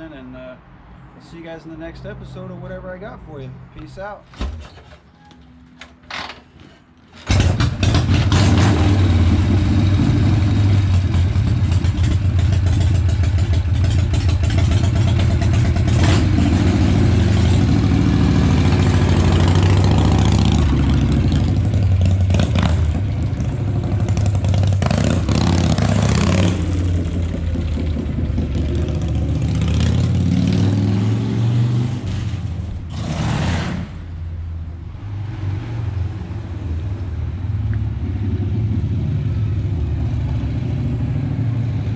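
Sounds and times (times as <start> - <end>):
motorcycle engine revving: 7.2 - 34.1.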